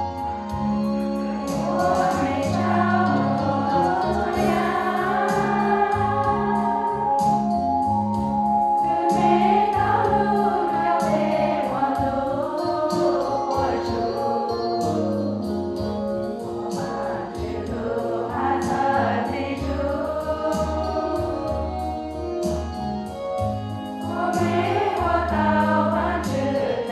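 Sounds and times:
low held accompaniment notes: 0:00.0 - 0:26.9
women's choir singing a hymn: 0:01.4 - 0:07.5, 0:08.8 - 0:14.6, 0:16.5 - 0:21.9, 0:24.0 - 0:26.9.

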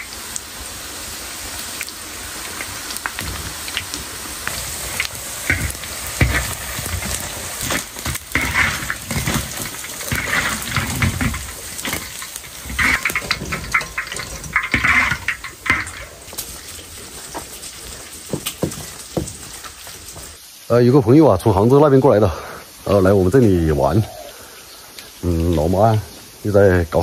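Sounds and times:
food frying in hot oil: 0:00.0 - 0:20.8.

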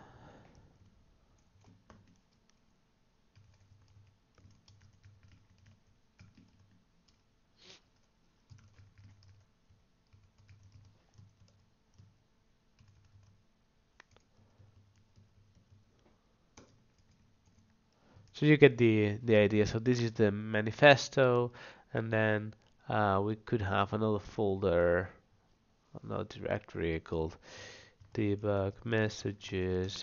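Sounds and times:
faint keyboard typing: 0:00.4 - 0:18.4, 0:27.9 - 0:30.0.

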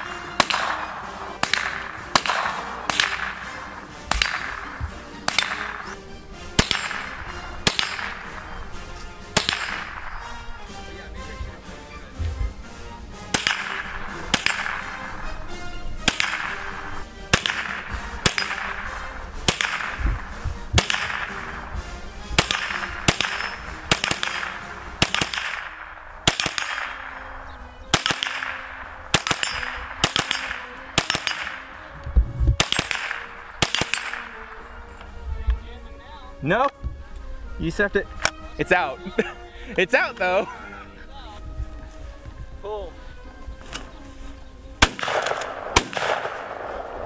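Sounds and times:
rifle shots echoing: 0:00.0 - 0:10.8, 0:13.1 - 0:31.9, 0:32.6 - 0:34.9, 0:44.8 - 0:47.0.

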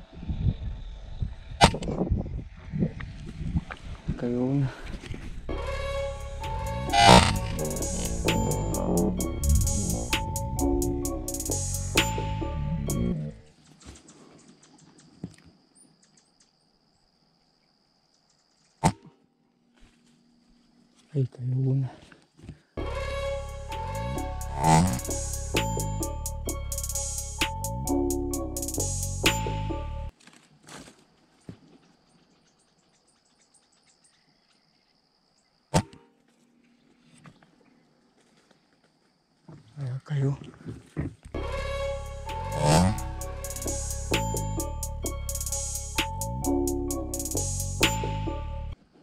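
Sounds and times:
music: 0:05.5 - 0:13.2, 0:22.8 - 0:30.1, 0:41.4 - 0:48.8
steady high tone: 0:05.5 - 0:13.2, 0:22.8 - 0:30.1, 0:41.4 - 0:48.8
high insect trill: 0:05.6 - 0:12.3, 0:22.8 - 0:29.2, 0:41.4 - 0:48.0.

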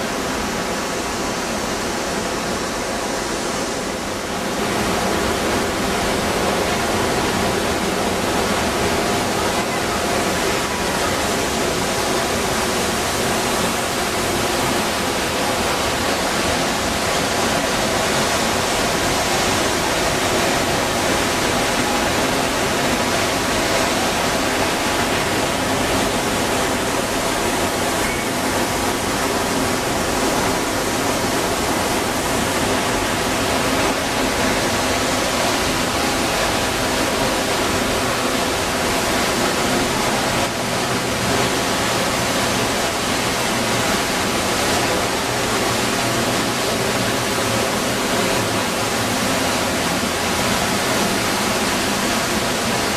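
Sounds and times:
waterfall roaring: 0:00.0 - 0:52.9.

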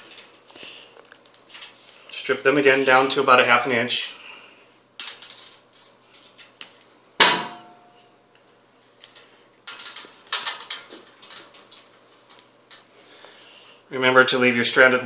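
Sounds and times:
wires rustling: 0:00.0 - 0:03.7, 0:04.6 - 0:07.1, 0:08.3 - 0:13.4.

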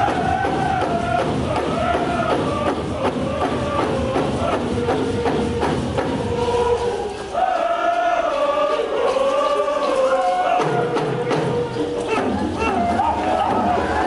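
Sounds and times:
group chanting: 0:00.0 - 0:14.0
steady drumbeats: 0:00.0 - 0:14.0.

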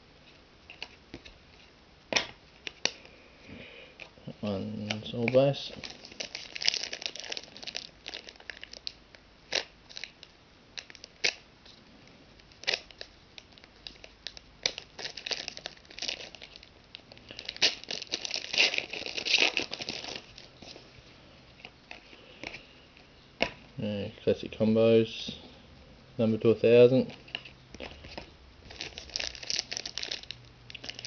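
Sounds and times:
foil wrapper tearing and crinkling: 0:04.8 - 0:11.4, 0:12.4 - 0:20.7, 0:28.6 - 0:31.0.

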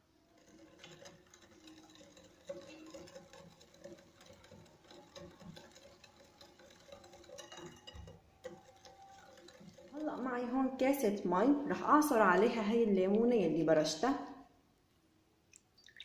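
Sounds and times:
whisk clinking against glass bowl: 0:00.4 - 0:10.3.

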